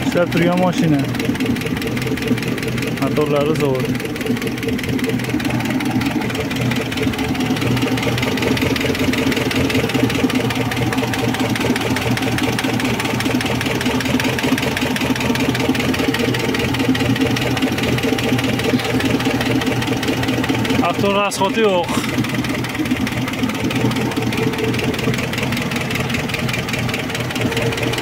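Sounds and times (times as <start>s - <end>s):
truck engine idling: 0.0s - 28.0s.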